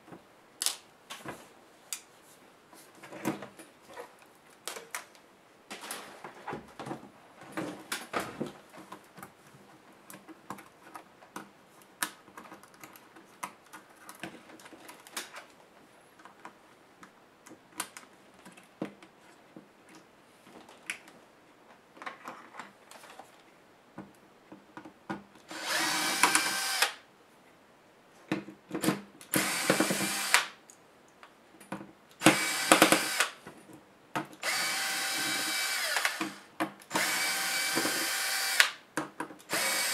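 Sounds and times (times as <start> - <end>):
cordless electric screwdriver whirring: 25.5 - 27.0, 29.4 - 30.5, 32.2 - 33.4, 34.4 - 38.8, 39.5 - 39.9.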